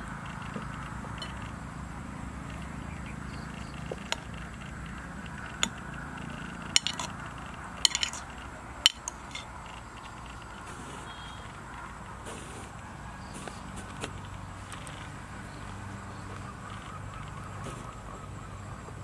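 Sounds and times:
spoon clinking on ceramic bowl: 6.8 - 7.1, 7.8 - 8.2, 8.8 - 9.5.

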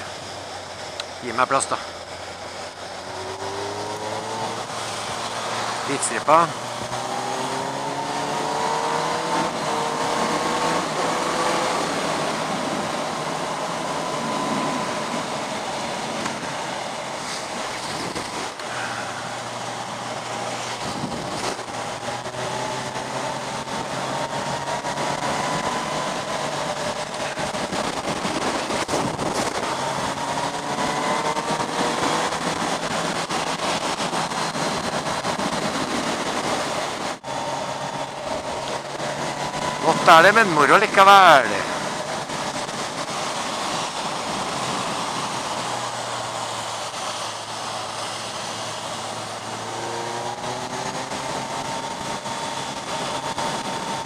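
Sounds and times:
wind rush: 2.4 - 54.0
tyre hiss on wet road: 17.1 - 21.0.

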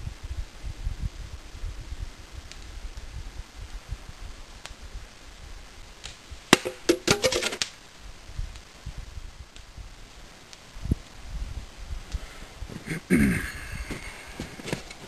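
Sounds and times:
arrow cracking through plastic bottle: 6.5 - 7.7
plastic bottle clattering: 6.6 - 7.6.

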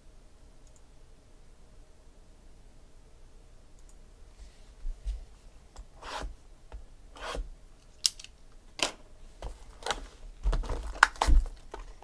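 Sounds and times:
foil packs rustling: 9.6 - 12.0.

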